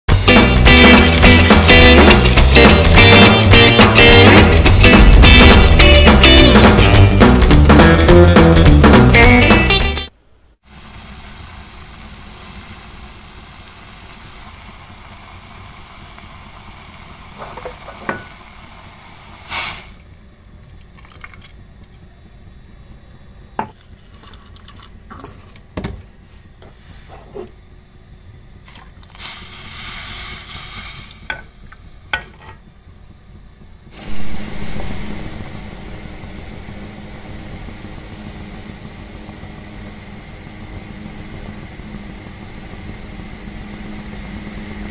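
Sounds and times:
gas burner hissing: 0:00.1 - 0:08.8, 0:10.5 - 0:20.4, 0:29.0 - 0:44.9
milk pouring: 0:23.8 - 0:25.6.

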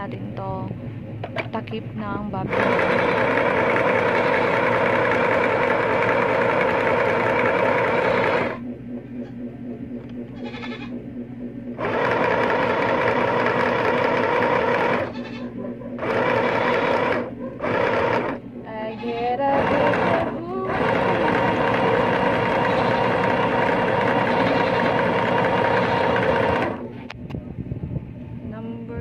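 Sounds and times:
sewing machine stitching: 0:02.5 - 0:08.6, 0:11.8 - 0:15.3, 0:16.0 - 0:18.4, 0:19.6 - 0:26.8.

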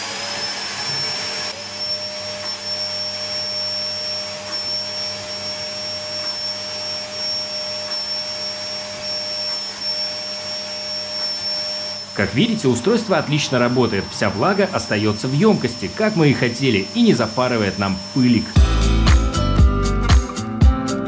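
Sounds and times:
vacuum cleaner running: 0:00.0 - 0:21.0.

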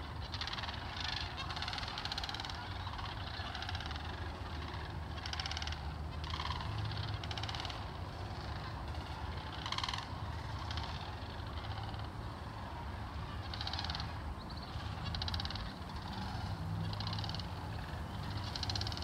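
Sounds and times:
cranes rattling calls: 0:00.0 - 0:19.0
low steady rumble: 0:00.0 - 0:19.0.

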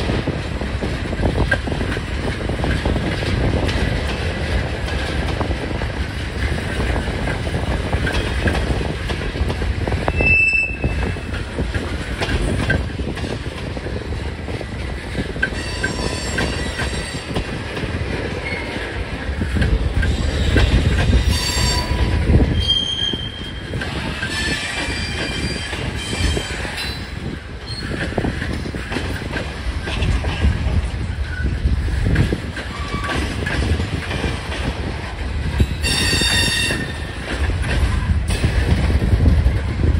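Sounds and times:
train wheels rumbling on rail: 0:00.0 - 0:39.9
high-pitched wheel squeals: 0:10.1 - 0:11.2, 0:21.2 - 0:23.6.

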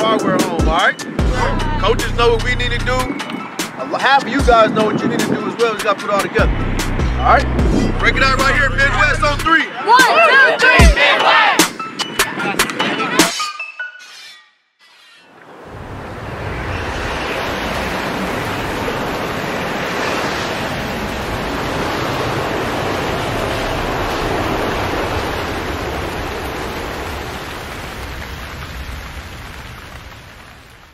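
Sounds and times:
heavy rain hiss: 0:15.5 - 0:30.9.

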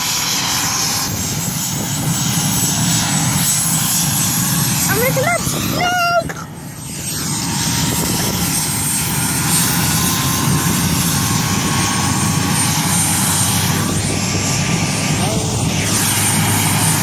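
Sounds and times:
helicopter turbine and rotor drone: 0:00.0 - 0:17.0.

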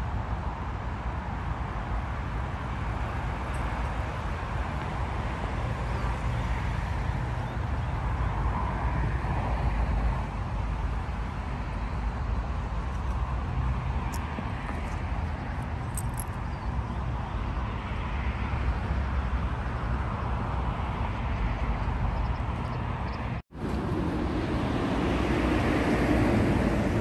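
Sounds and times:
distant road traffic: 0:00.0 - 0:27.0
wind buffeting microphone: 0:19.0 - 0:27.0.

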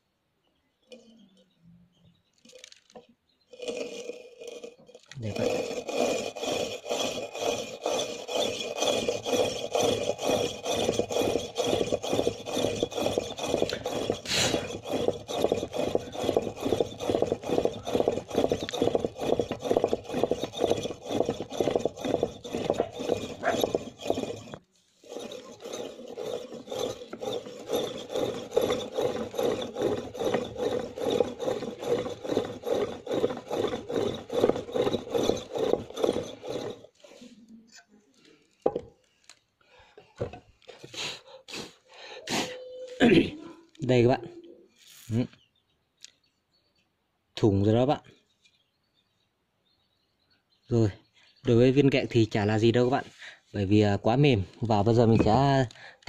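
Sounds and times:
pump drill grinding into brick: 0:02.5 - 0:37.2, 0:54.7 - 0:55.7.

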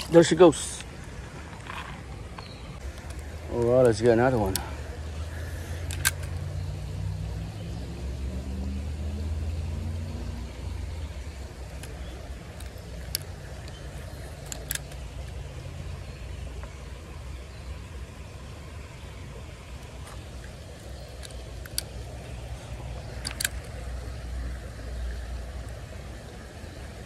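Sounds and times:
motor vehicle engine hum: 0:00.0 - 0:27.0
faint sharp clicks: 0:11.6 - 0:15.4, 0:19.9 - 0:22.4.

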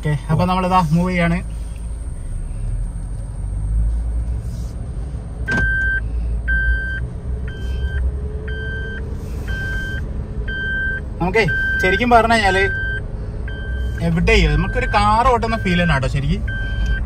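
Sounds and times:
car engine and tyres rumbling: 0:00.0 - 0:17.0
car warning chime beeping: 0:05.5 - 0:17.0.

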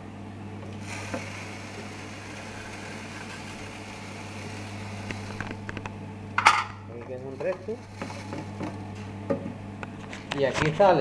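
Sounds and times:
seed cleaning machine humming: 0:00.0 - 0:09.2
steady hiss: 0:00.8 - 0:05.6.

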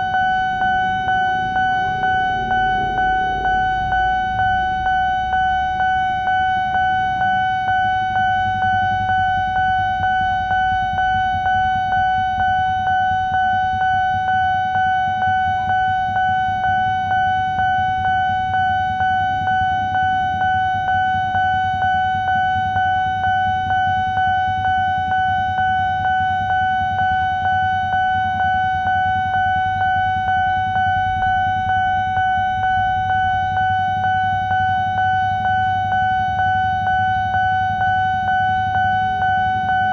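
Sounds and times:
level crossing warning bell: 0:00.0 - 0:39.9.

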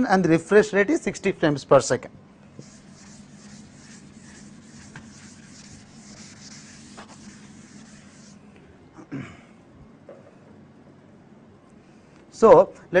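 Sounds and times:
steady low hum: 0:01.0 - 0:12.9
pen scratching on paper: 0:02.6 - 0:08.4.

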